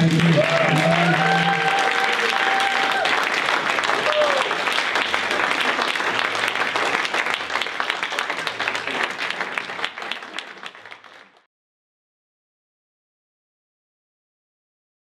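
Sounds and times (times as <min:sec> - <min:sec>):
crowd applauding: 0:00.0 - 0:11.5.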